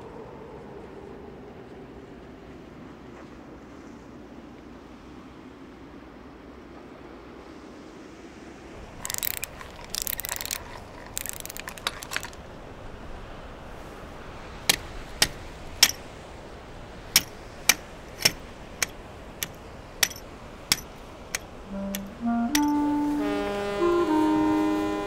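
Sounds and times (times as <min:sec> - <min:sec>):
sharp clicks: 0:09.0 - 0:12.4, 0:14.7 - 0:16.0, 0:17.2 - 0:22.7.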